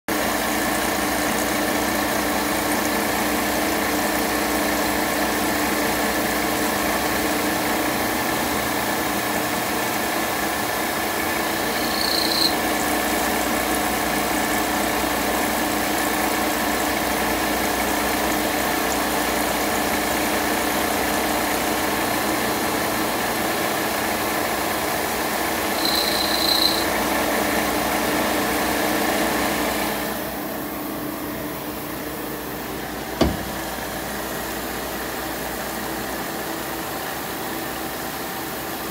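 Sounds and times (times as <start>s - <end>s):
brief high squeals: 11.5s - 12.6s, 25.7s - 26.9s.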